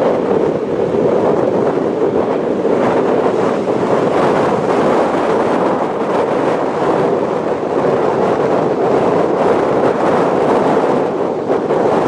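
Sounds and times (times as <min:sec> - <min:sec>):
surf breaking on shore: 0:00.0 - 0:12.0
wind on microphone: 0:00.0 - 0:12.0.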